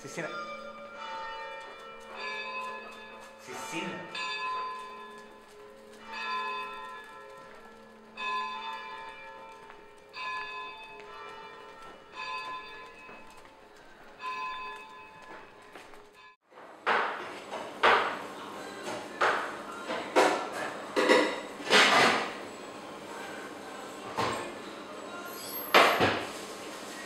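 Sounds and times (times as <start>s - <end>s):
bell tolling: 0.0s - 13.5s.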